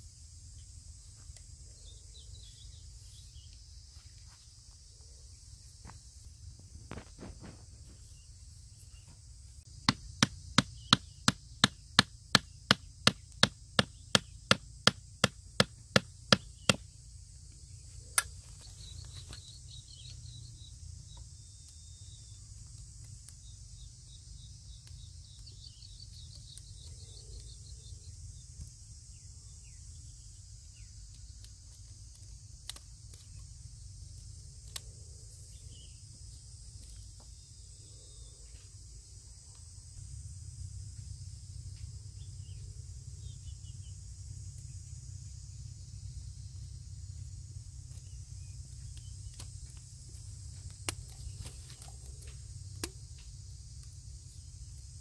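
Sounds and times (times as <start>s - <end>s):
hammer driving wooden stake: 9.8s - 16.8s.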